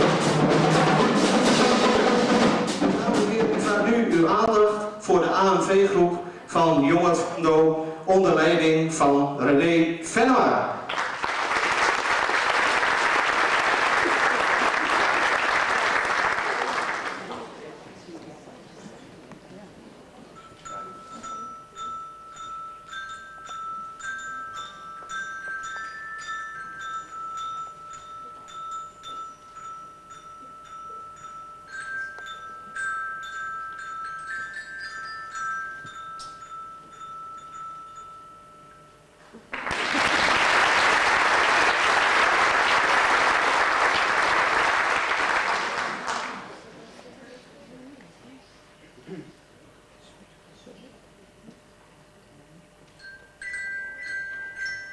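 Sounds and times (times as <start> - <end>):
audience applauding: 10.9 - 17.7, 39.5 - 46.6
glockenspiel tune: 20.4 - 39.4, 52.9 - 54.9.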